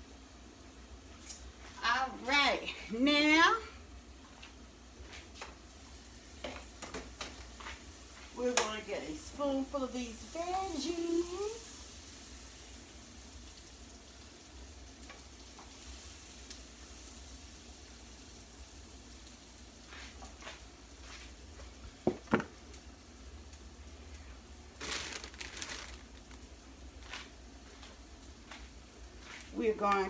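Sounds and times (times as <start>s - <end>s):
meat sizzling in a skillet: 4.7s - 24.1s.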